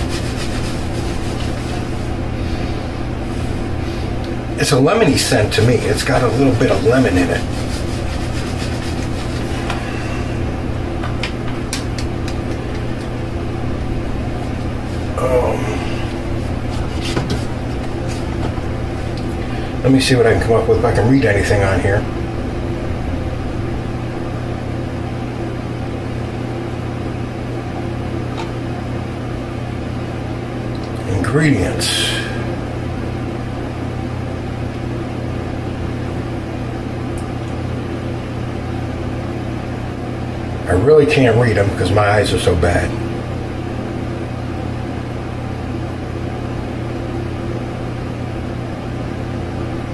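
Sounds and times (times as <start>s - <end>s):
low mechanical hum: 0.0s - 49.9s
man murmuring: 15.1s - 16.3s.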